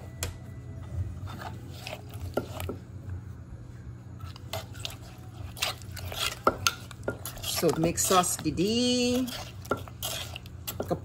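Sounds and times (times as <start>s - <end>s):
pestle knocking in clay mortar: 9.3s - 11.0s.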